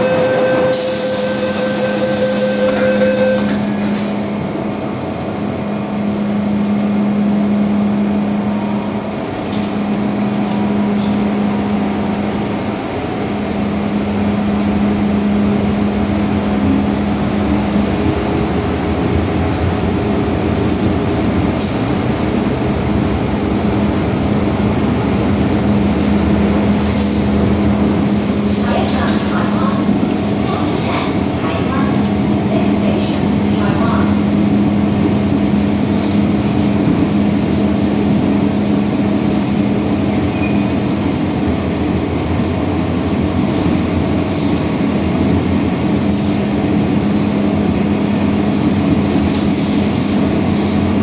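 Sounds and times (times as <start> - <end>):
brief high hiss and tone: 0.0 - 3.7
train wheels on rail: 0.0 - 51.0.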